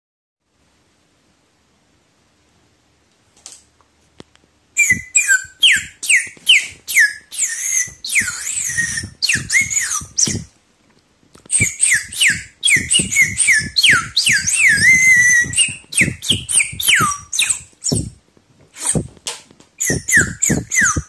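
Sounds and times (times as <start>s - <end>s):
straw whistle chirps: 4.8s - 10.5s, 11.5s - 18.2s, 19.8s - 21.0s.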